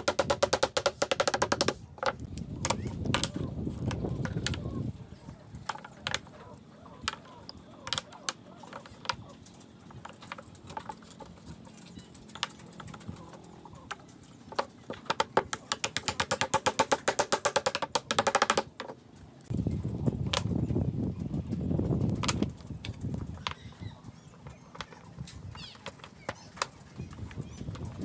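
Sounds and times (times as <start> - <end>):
fast wooden taps: 0.0 - 4.7, 13.9 - 19.0
wooden blocks clicking: 0.0 - 4.7, 5.6 - 6.4, 7.0 - 19.0, 22.1 - 23.7.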